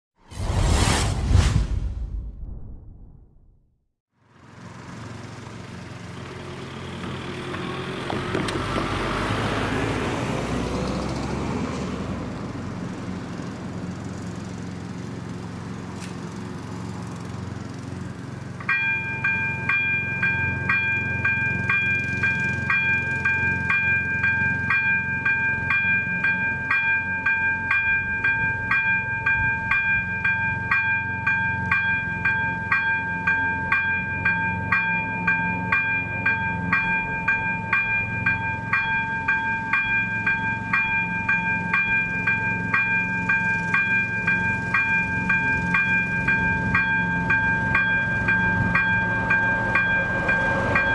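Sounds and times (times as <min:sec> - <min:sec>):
car passing: 0:05.9 - 0:14.9, 0:44.4 - 0:50.9
electronic warning bell ringing: 0:18.7 - 0:50.9.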